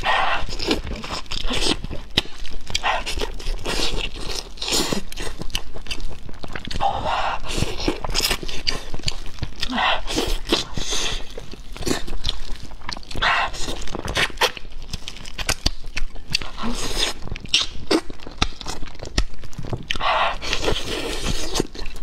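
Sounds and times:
chewing and wet lip smacks: 7.4 - 22.0
sharp wet clicks: 17.4 - 20.1.

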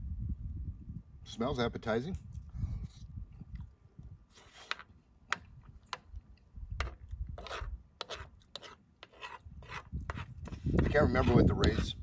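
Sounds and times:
spoon scraping a bowl: 4.3 - 6.0, 6.8 - 12.0.

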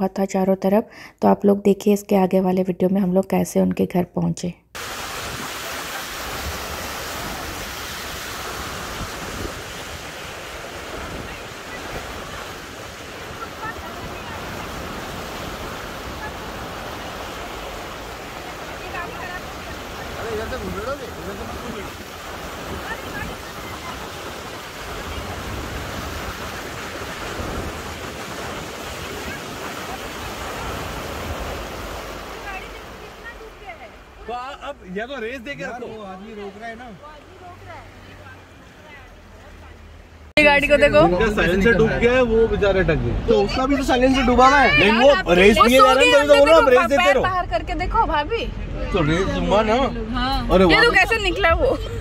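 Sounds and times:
rain and floodwater rushing: 4.8 - 52.0
wind buffeting microphone: 4.9 - 33.0.

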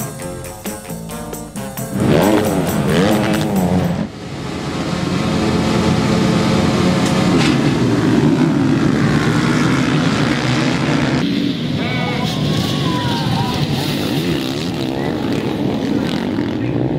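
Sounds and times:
music: 0.0 - 4.1
motocross bikes revving: 0.0 - 16.9.

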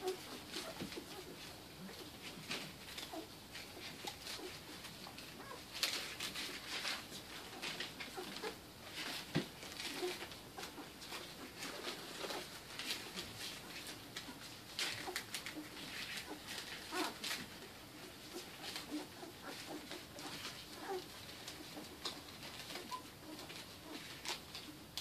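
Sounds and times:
newspaper rustling: 0.0 - 25.0
puppies squeaking and grunting: 0.0 - 25.0.

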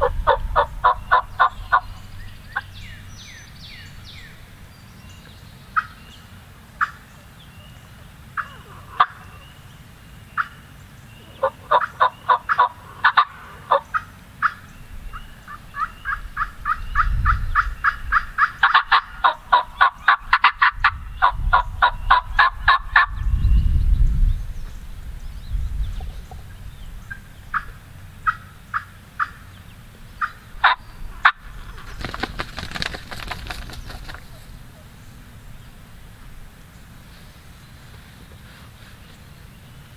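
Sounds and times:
turkey calls: 0.0 - 2.8, 5.7 - 6.0, 8.3 - 9.6, 10.4 - 23.2, 27.1 - 29.5, 30.2 - 35.0.

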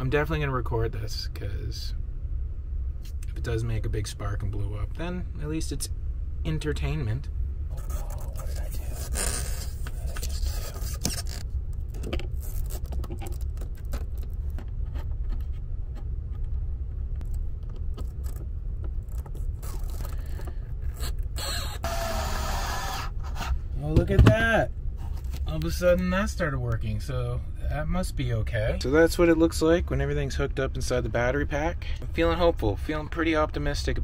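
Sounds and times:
low rumble: 0.0 - 34.0
cordless screwdriver whirring: 20.9 - 23.4.

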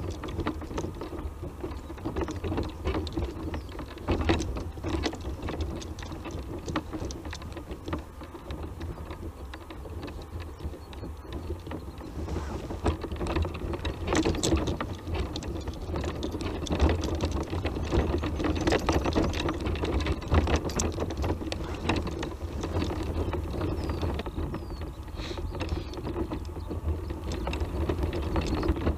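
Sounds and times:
scooter rattling over bumps: 0.0 - 28.9
tyres crunching over stones: 0.0 - 28.9.

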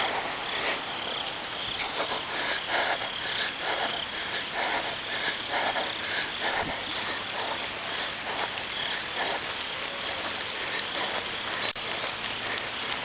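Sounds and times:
rain hissing on wet road: 0.0 - 13.0.

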